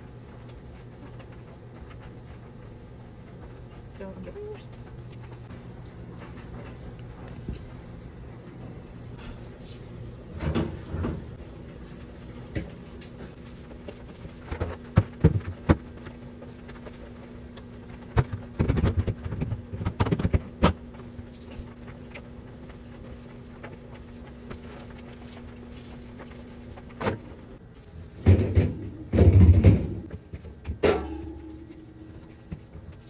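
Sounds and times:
low hum: 0:00.0 - 0:33.0
plastic drawers knocking: 0:28.2 - 0:31.2.

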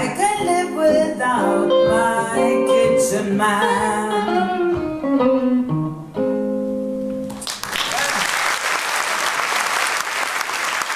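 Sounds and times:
audience applause: 0:07.4 - 0:10.9.

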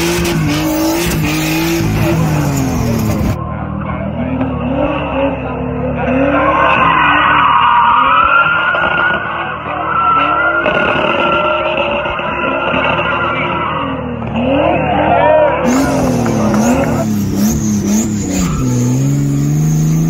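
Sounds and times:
car engine revving: 0:00.0 - 0:20.0
tyre squeal: 0:15.0 - 0:20.0.

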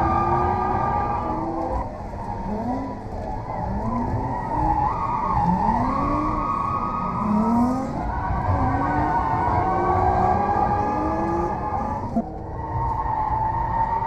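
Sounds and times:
car engine revving: 0:00.0 - 0:14.0.

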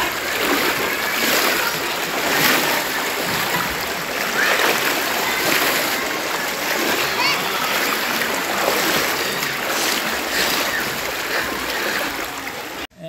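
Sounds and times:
faint voices: 0:00.0 - 0:12.9
floodwater rushing: 0:00.0 - 0:12.9
people wading through water: 0:00.0 - 0:12.9.

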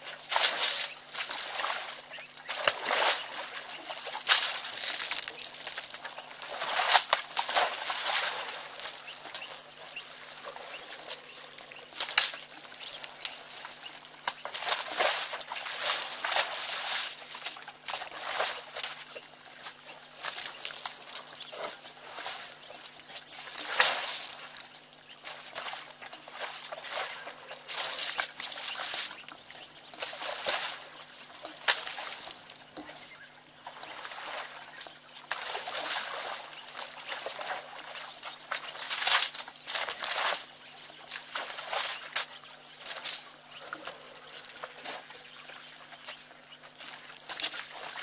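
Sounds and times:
elephant splashing in mud: 0:00.0 - 0:09.5, 0:14.3 - 0:19.0, 0:23.5 - 0:24.6, 0:25.2 - 0:29.2, 0:30.0 - 0:31.0, 0:35.3 - 0:43.2
faint low hum: 0:00.0 - 0:48.0.

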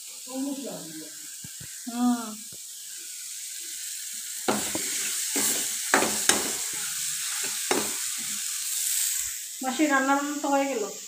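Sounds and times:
curry sizzling in a pan: 0:00.0 - 0:11.0
spatula scraping a pan: 0:04.5 - 0:08.5.

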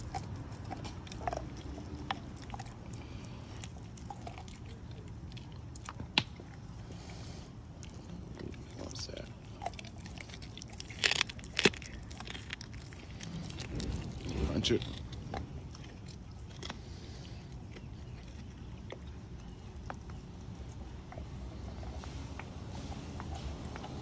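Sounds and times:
dog chewing raw meat: 0:00.0 - 0:24.0
sharp crunching clicks: 0:09.6 - 0:16.8.

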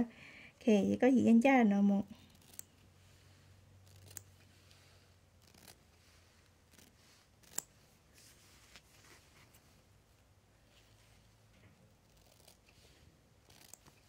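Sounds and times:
light rustles of cloth: 0:06.0 - 0:09.9.

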